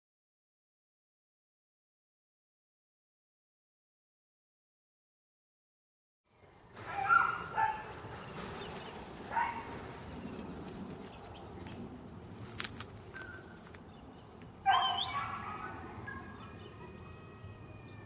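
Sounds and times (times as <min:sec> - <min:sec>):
dog barking: 0:06.8 - 0:07.9, 0:09.3 - 0:09.7, 0:14.6 - 0:16.5
dog yelping: 0:06.9 - 0:07.9, 0:09.3 - 0:09.7, 0:14.6 - 0:17.0.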